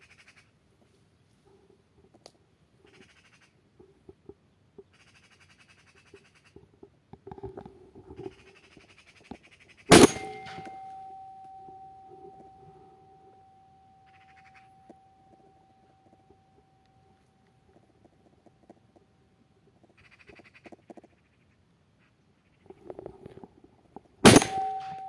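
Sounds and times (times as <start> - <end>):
shotgun shot: 9.9 - 10.8, 24.3 - 25.0
steady high tone: 9.9 - 17.5, 24.3 - 25.0
magpies chattering: 19.8 - 22.9.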